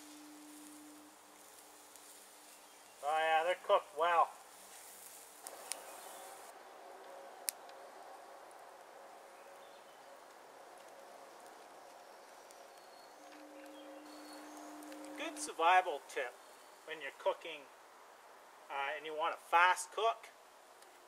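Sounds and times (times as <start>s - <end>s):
low steady buzz: 0.0s - 2.6s, 5.6s - 17.0s
fire popping: 0.0s - 3.1s, 4.3s - 6.5s, 10.2s - 15.6s
wood fire hissing: 0.0s - 6.6s.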